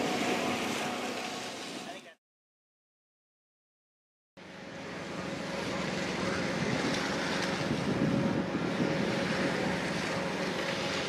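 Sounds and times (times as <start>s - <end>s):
low machine hum: 4.4s - 11.0s
rushing wind-like noise: 4.7s - 11.0s.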